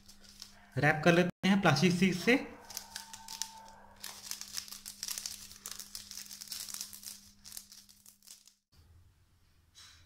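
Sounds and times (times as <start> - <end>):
plastic sheet crinkling: 0.0 - 0.6, 2.6 - 8.7.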